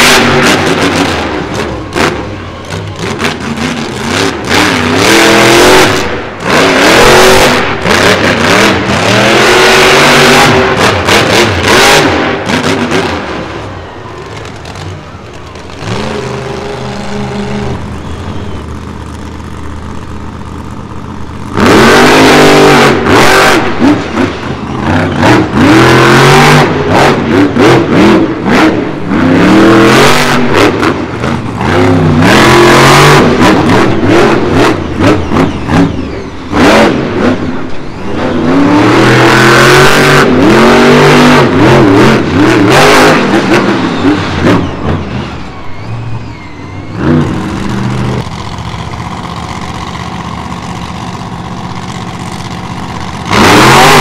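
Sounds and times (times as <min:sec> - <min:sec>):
monster truck engine revving: 0:00.0 - 0:54.0.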